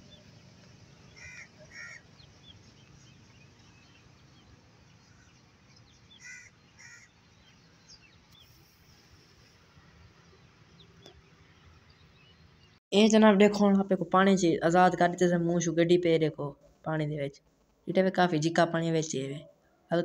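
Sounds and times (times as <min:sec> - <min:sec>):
harsh bird calls: 0:00.0 - 0:12.8.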